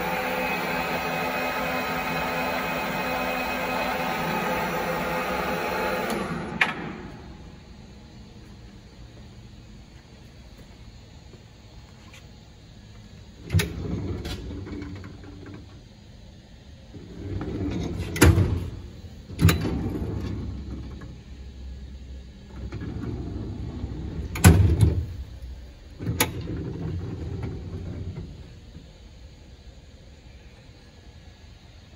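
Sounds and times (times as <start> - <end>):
metal drawers sliding: 17.3 - 20.6.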